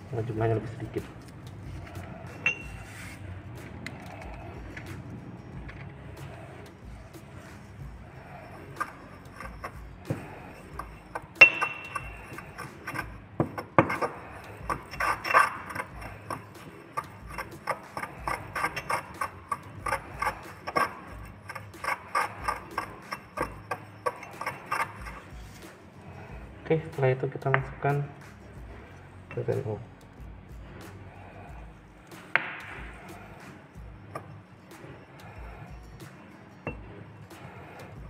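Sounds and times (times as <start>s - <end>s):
pestle grinding in mortar: 1.0s - 26.6s
ringing porcelain clink: 2.4s - 2.9s, 9.4s - 13.0s.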